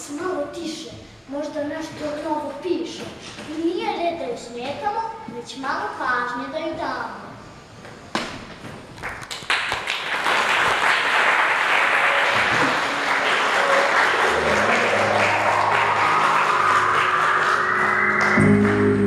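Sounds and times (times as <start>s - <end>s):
audience applauding: 9.0s - 19.0s
music playing: 13.4s - 19.0s.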